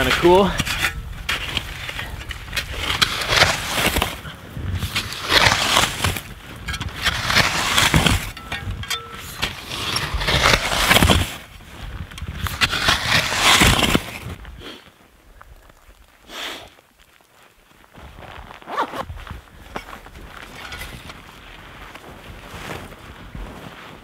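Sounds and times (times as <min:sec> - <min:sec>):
shovel scraping packed snow: 0:00.0 - 0:14.8.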